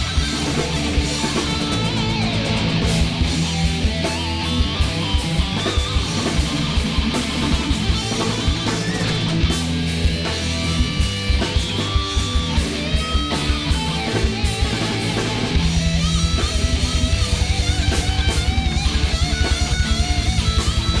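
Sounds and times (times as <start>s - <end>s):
bass guitar: 0.0s - 21.0s
distorted electric guitars: 0.0s - 21.0s
drums: 0.0s - 21.0s
rapid kick-drum beat: 0.0s - 21.0s.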